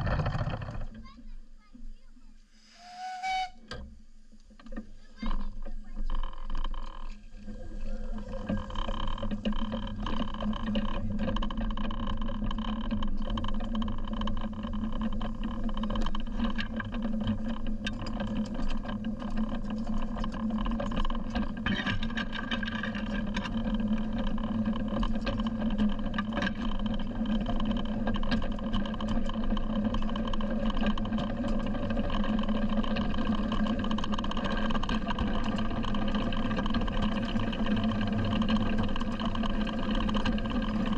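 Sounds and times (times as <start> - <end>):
miniature locomotive drone: 0.0 - 1.4, 2.5 - 40.9
clicks of wheels on track: 8.5 - 40.9.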